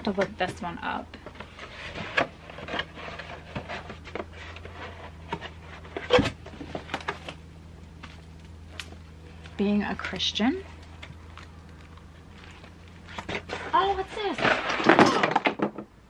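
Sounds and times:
cardboard boxes rustling and scraping: 0.4 - 7.4, 12.2 - 15.4.

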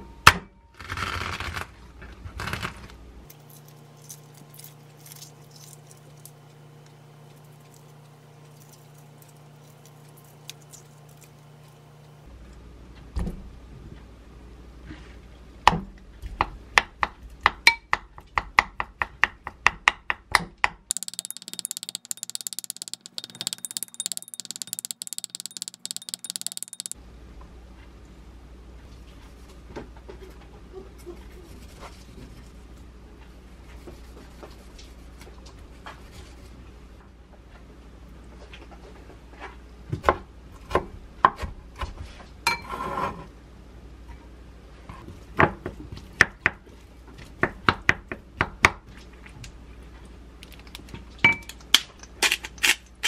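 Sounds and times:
clicking and scraping in bowl: 20.9 - 27.0
egg shell peeling clicks: 20.9 - 27.0
spoon tapping glass bowl: 20.9 - 27.0.

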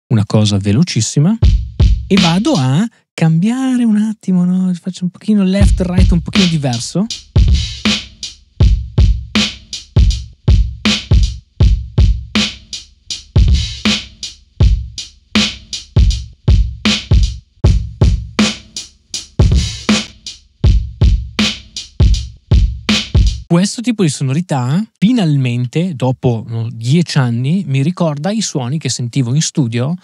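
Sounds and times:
punchy drum hits: 1.4 - 2.6, 5.6 - 12.7, 13.4 - 18.8, 19.4 - 23.5.

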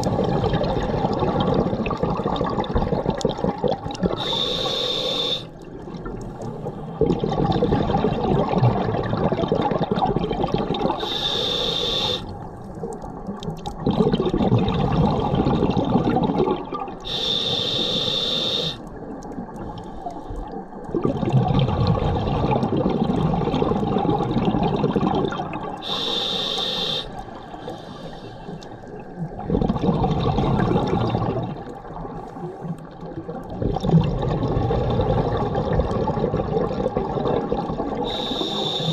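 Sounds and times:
regulator hissing inhalations: 4.2 - 5.5, 11.0 - 12.4, 17.1 - 18.8, 25.8 - 28.6, 38.0 - 38.9
bubbling exhaust: 20.9 - 27.0, 29.3 - 31.8.

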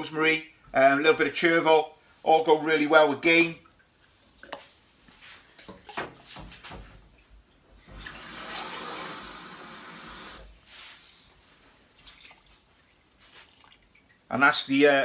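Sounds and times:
kitchen tap running with whistle: 7.8 - 10.5.

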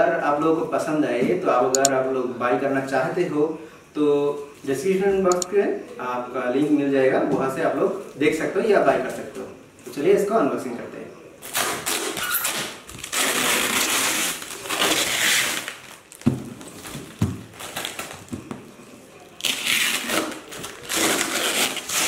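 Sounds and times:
plastic wrap crinkling and tearing: 11.4 - 18.4, 19.4 - 22.0.

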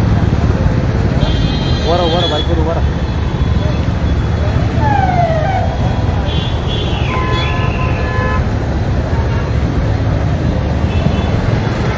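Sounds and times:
traffic rumble: 0.0 - 11.9
car horn: 1.2 - 2.7, 5.8 - 8.5.

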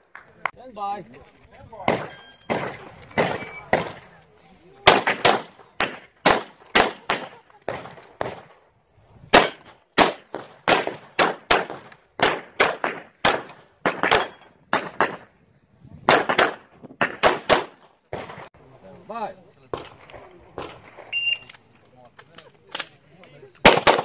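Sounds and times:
pistol shots: 1.9 - 4.1, 4.8 - 8.5, 9.3 - 15.2, 16.1 - 18.5, 23.6 - 24.0
steel targets ringing: 13.3 - 14.5.

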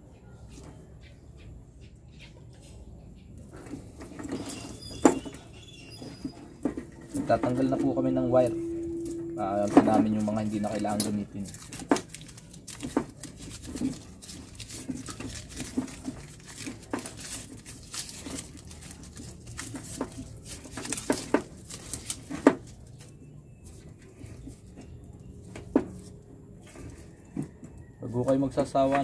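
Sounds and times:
wires rustling and clicking: 3.4 - 27.7.

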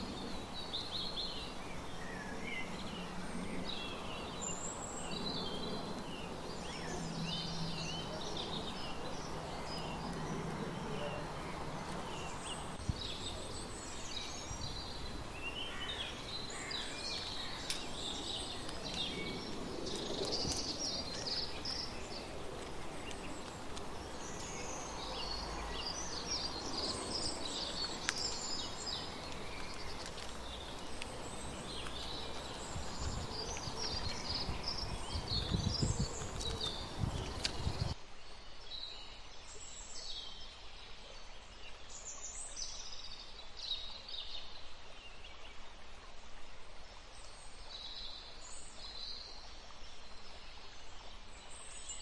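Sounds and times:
songbirds chirping and singing: 0.0 - 38.0
steady outdoor hiss: 0.0 - 52.0.

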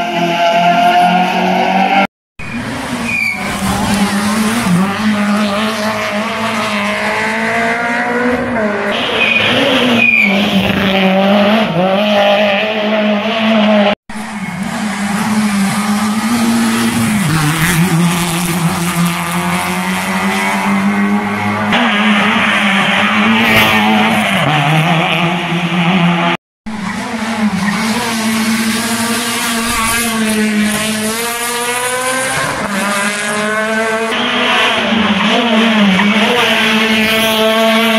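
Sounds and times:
rally car engines revving: 0.0 - 37.9
tyre squeals: 3.0 - 4.3, 9.0 - 10.8.

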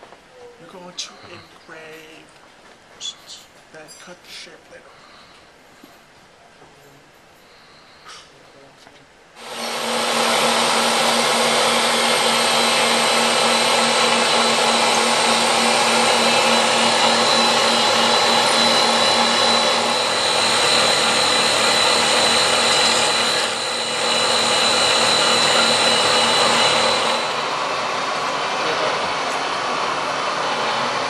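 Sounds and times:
milling machine whine: 9.4 - 31.0.

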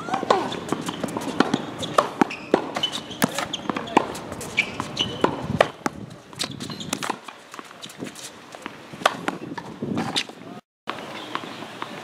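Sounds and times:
sneakers squeaking on court: 0.0 - 10.4
tennis ball hit by racket: 0.0 - 10.4
ball bouncing on hard court: 0.1 - 7.7.

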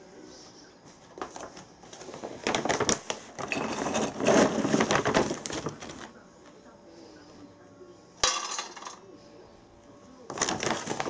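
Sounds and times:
foil bag crinkling: 1.2 - 6.2, 10.3 - 11.0.

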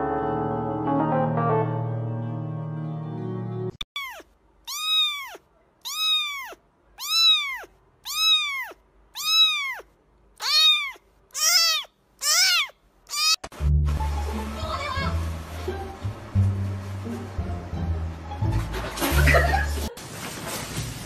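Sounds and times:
kitten meowing: 3.9 - 13.4.

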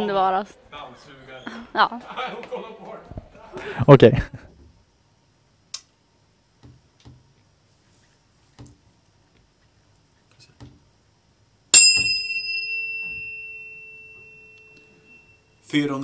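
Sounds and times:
tuning fork clang: 11.7 - 15.6
tuning fork pure tone: 11.7 - 15.7.

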